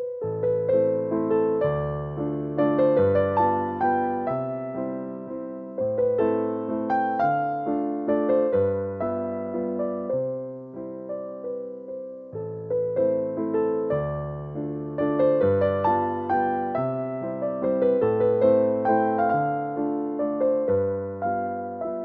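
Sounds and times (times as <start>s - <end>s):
gentle piano melody: 0.0s - 22.0s.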